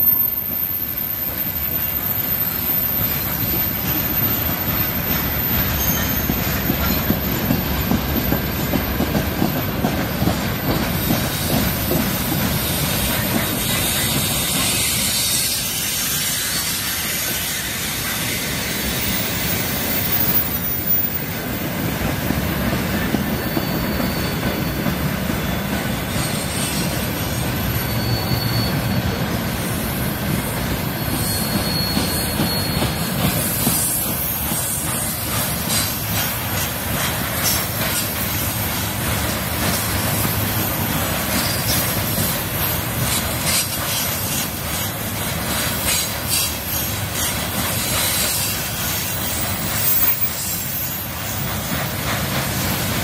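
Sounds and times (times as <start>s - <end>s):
train wheels rumbling on rails: 0.0s - 53.0s
wheels clacking over rail joints: 3.1s - 15.8s, 30.5s - 53.0s.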